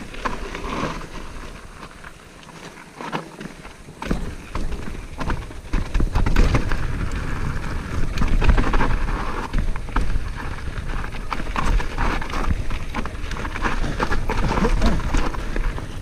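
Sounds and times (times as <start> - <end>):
bike rattling: 0.0 - 16.0
tyres crunching over stones: 0.0 - 16.0.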